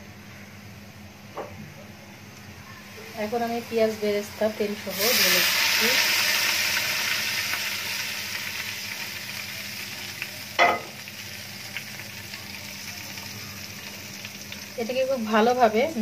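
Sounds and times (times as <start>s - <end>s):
hot oil sizzling: 2.4s - 16.0s.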